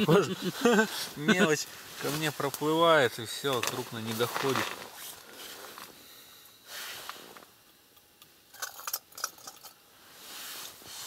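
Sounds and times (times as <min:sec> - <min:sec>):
soft handling rustle: 0:00.6 - 0:06.1, 0:10.0 - 0:11.0.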